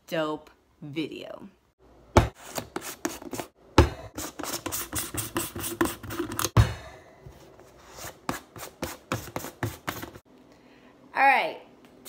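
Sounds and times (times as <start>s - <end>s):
plastic tubs tapping and rubbing: 2.2s - 6.6s.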